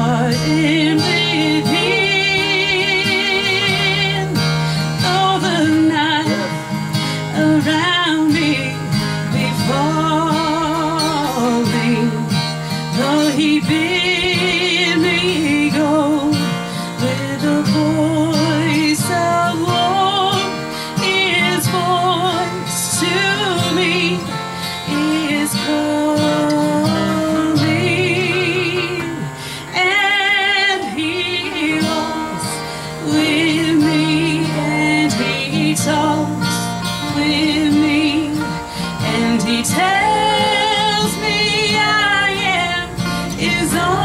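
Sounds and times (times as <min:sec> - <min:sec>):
gospel band playing a hymn: 0:00.0 - 0:44.0
woman singing with vibrato: 0:00.0 - 0:44.0.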